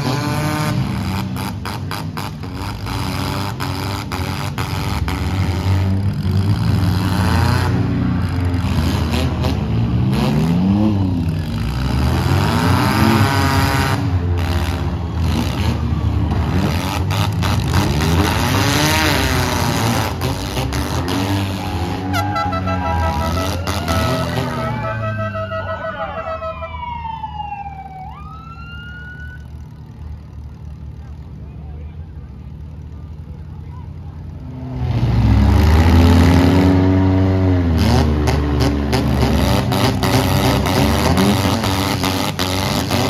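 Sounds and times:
car engines revving: 0:00.0 - 0:43.0
pulsing horn-like tone: 0:21.6 - 0:26.8
siren-like gliding tone: 0:21.6 - 0:29.5.

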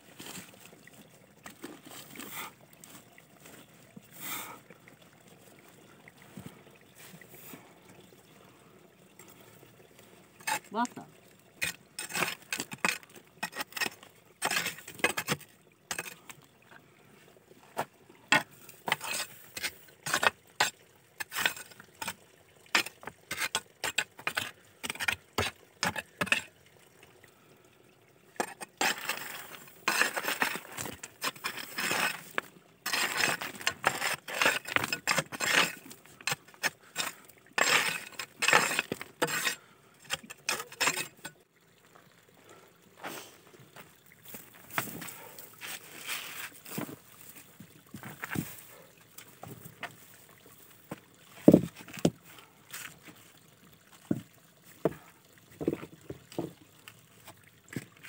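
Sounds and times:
gritty scraping: 0:28.4 - 0:41.3, 0:44.3 - 0:48.8
stones clattering together: 0:51.4 - 0:52.2.

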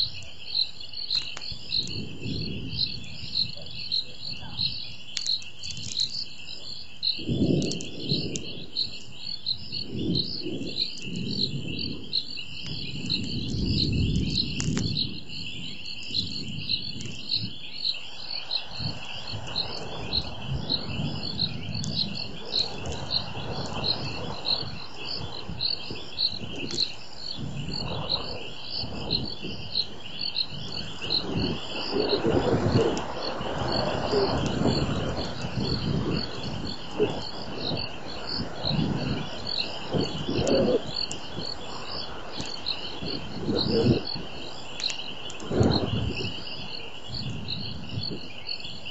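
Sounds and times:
frogs and insects chirping: 0:00.0 - 0:48.9.

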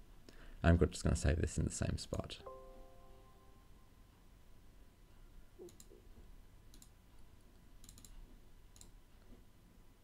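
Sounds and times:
computer mouse clicks: 0:05.6 - 0:09.4.

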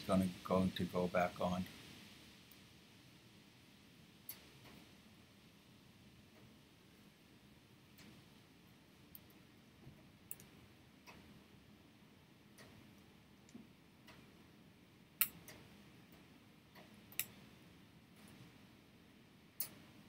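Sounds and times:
metal tweezers clicking: 0:15.2 - 0:15.6, 0:17.1 - 0:17.4.

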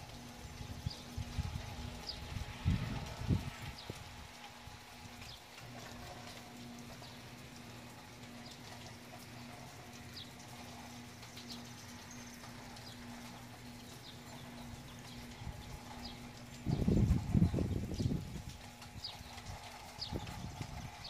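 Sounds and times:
faint steady hum: 0:00.0 - 0:21.0
light rain ticking and dripping: 0:00.0 - 0:21.0
small birds chirping: 0:00.8 - 0:02.6, 0:05.2 - 0:05.6, 0:06.8 - 0:21.0.

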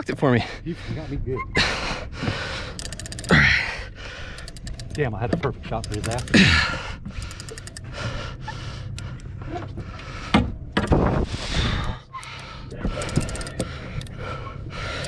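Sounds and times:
man breathing hard: 0:00.4 - 0:05.0, 0:06.2 - 0:15.0
clicks: 0:04.3 - 0:06.4
low rumble: 0:07.8 - 0:15.0.

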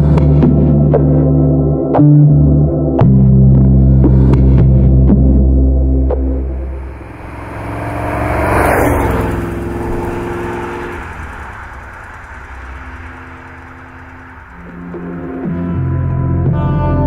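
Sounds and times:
car driving by: 0:06.0 - 0:17.0.

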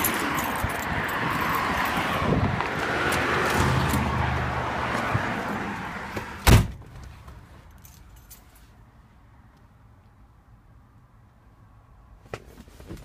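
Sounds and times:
loud thump: 0:06.4 - 0:06.9.

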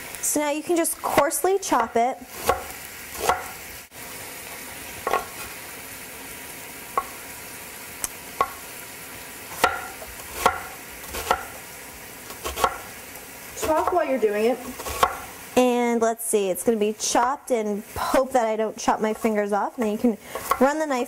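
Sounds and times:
scallops sizzling in a pan: 0:00.0 - 0:21.0
knife chopping on wooden board: 0:01.8 - 0:03.6, 0:09.6 - 0:11.6, 0:12.3 - 0:12.9, 0:14.8 - 0:15.3, 0:20.3 - 0:20.7.

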